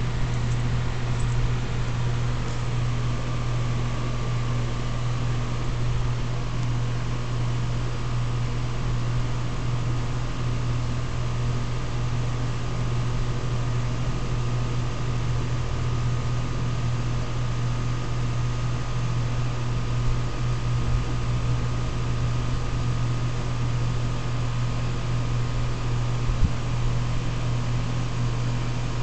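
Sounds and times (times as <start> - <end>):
fan rush: 0.0 - 10.0
air conditioner humming: 0.0 - 29.0.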